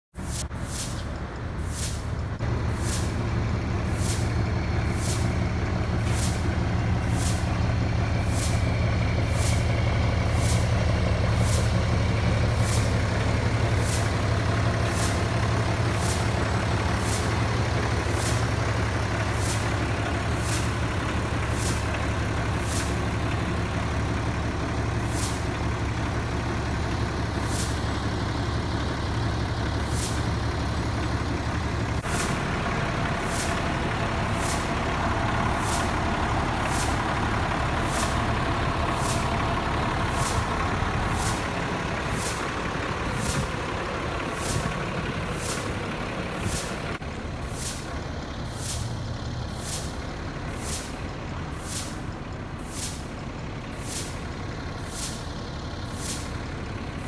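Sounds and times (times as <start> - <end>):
diesel engine idling: 0.1 - 57.0.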